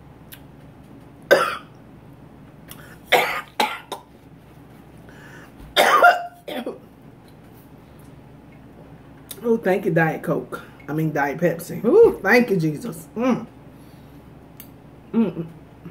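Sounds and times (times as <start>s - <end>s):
woman coughing: 1.3s - 1.7s, 3.1s - 4.1s, 5.8s - 6.8s.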